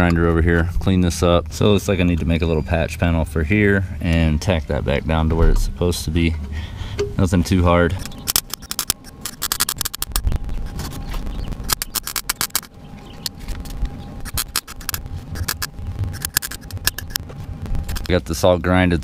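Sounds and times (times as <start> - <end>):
welder sputtering crackle: 7.9 - 19.0.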